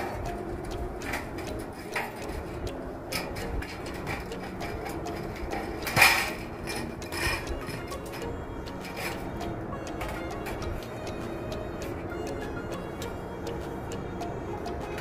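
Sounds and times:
sheet metal clicks and knocks: 0.0s - 9.3s
sheet metal clank: 1.0s - 7.8s.

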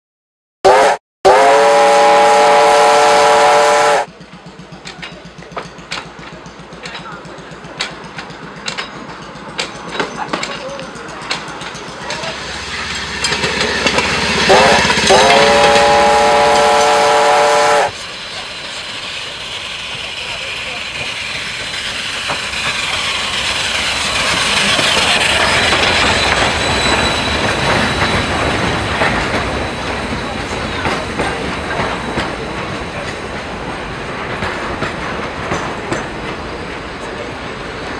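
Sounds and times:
steam locomotive whistle: 0.6s - 4.1s, 13.7s - 18.0s
steam train rolling past: 0.7s - 37.9s
wheels clicking over rail joints: 4.1s - 16.9s, 19.8s - 37.9s
high wheel squeal: 17.9s - 32.8s.

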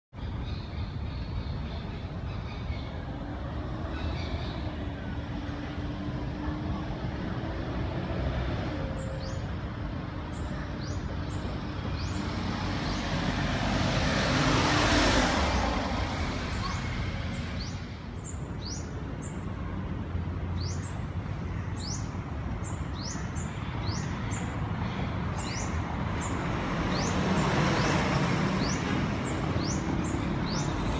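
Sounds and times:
street traffic: 0.1s - 30.9s
vehicle passing: 11.2s - 18.8s, 23.8s - 30.9s.

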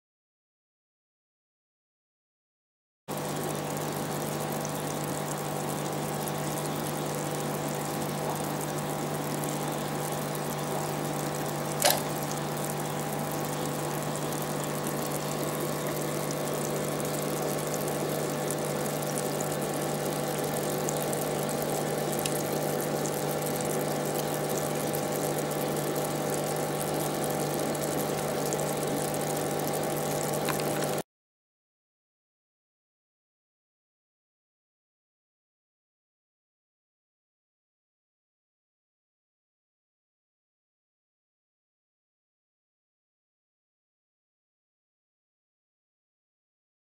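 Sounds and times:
aquarium pump humming: 3.1s - 31.0s
sharp click: 11.8s - 12.2s
water moving: 30.0s - 31.0s.

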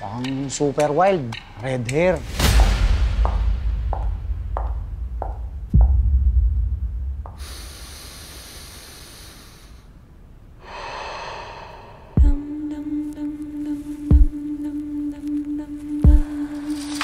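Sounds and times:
low rumble: 2.0s - 9.3s, 10.0s - 12.7s
low hit: 2.2s - 7.9s
man breathing deeply: 7.2s - 12.4s.

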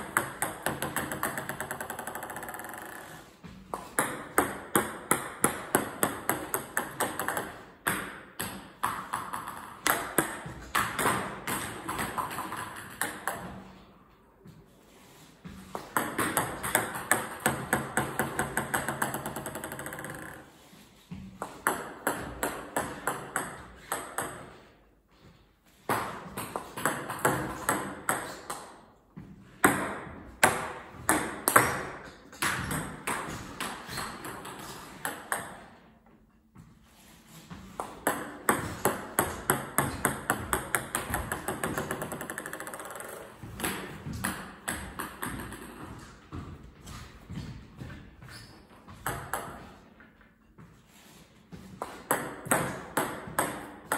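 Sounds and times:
table tennis balls bouncing: 0.0s - 53.9s.

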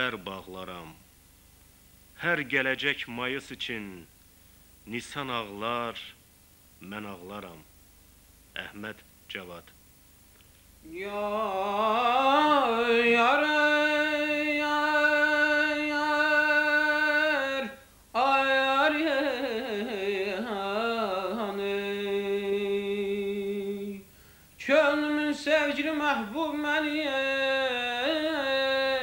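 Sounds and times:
person singing: 10.9s - 24.0s.

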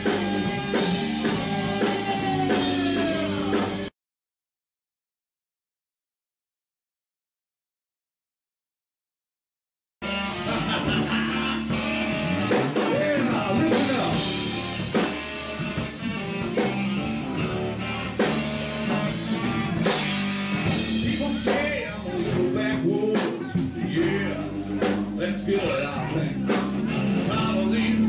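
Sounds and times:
drum kit beat: 0.0s - 3.9s, 10.0s - 28.0s
electric guitar: 0.0s - 3.9s, 10.0s - 28.0s.

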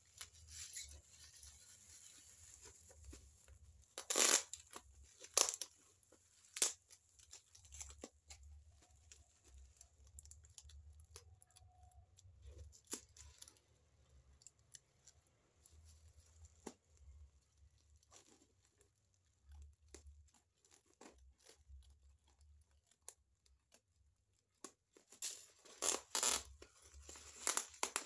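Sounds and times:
plastic wrapping rustling: 0.0s - 10.8s, 24.9s - 28.0s
tape and plastic ripping: 0.1s - 8.5s, 25.1s - 28.0s.

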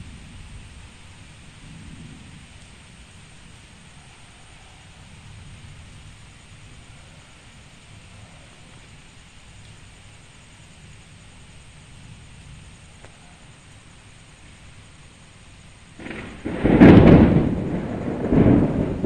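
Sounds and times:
faint steady hiss: 0.0s - 19.0s
thunder clap: 16.0s - 19.0s.

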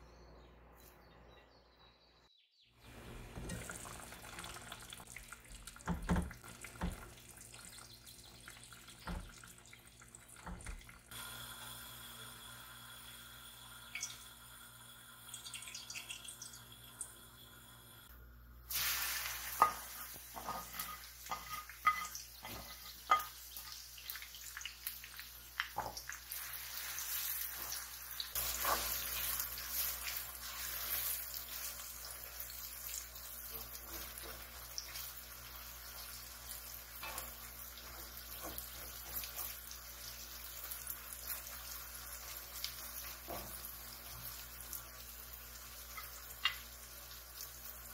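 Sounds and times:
steady cooking hiss: 10.4s - 47.9s
utensil clinking against cookware: 19.6s - 23.7s.

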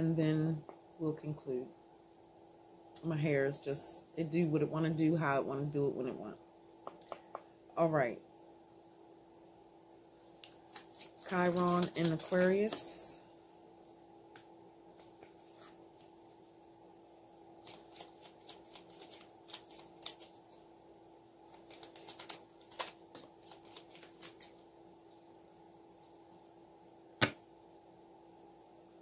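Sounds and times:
faint steady hum: 0.0s - 29.0s
cards shuffling and rustling: 10.5s - 13.0s, 17.6s - 20.4s, 21.5s - 24.6s.

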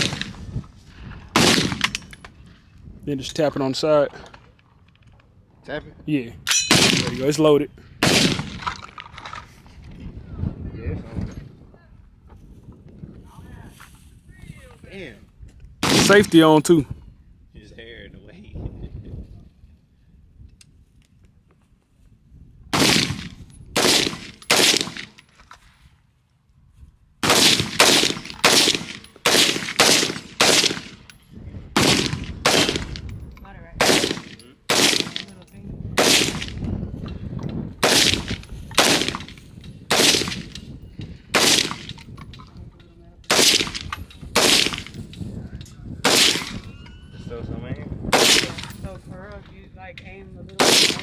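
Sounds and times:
rifle shots: 0.0s - 0.4s, 1.3s - 2.1s, 6.5s - 7.3s, 8.0s - 8.8s, 15.8s - 16.4s, 22.7s - 25.2s, 27.2s - 31.1s, 31.8s - 33.1s, 33.8s - 35.4s, 36.0s - 36.6s, 37.8s - 40.6s, 41.3s - 42.0s, 43.3s - 45.0s, 46.0s - 46.7s, 48.1s - 48.8s, 50.6s - 51.0s.

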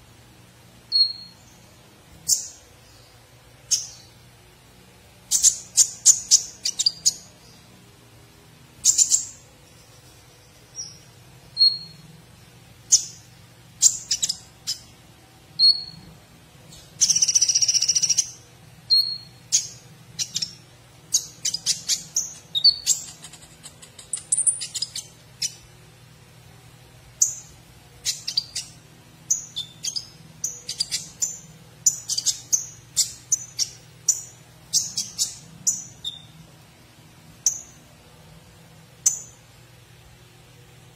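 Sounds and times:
bird whistled notes: 0.9s - 1.4s
sunbird chirping trills: 0.9s - 4.4s, 5.2s - 7.8s, 8.8s - 15.0s, 15.6s - 16.1s, 16.7s - 25.8s, 27.1s - 36.5s, 37.3s - 38.0s, 39.0s - 39.6s.

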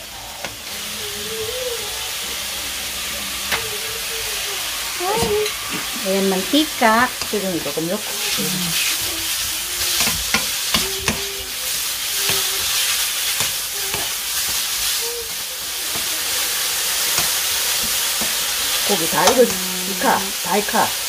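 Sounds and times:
meat sizzling in a wok: 0.0s - 21.0s
wooden spatula scraping a pan: 5.2s - 20.9s.

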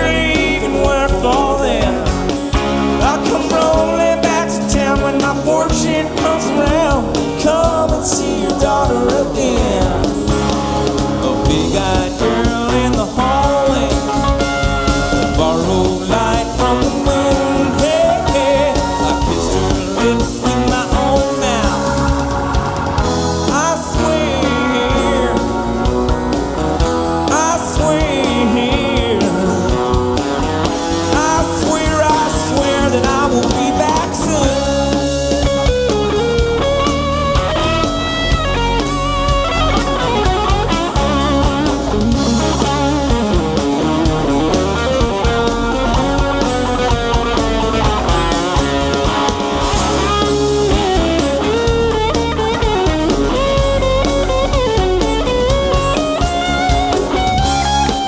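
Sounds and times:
bass guitar: 0.0s - 58.0s
drums: 0.0s - 58.0s
electric guitar lead: 0.0s - 58.0s.

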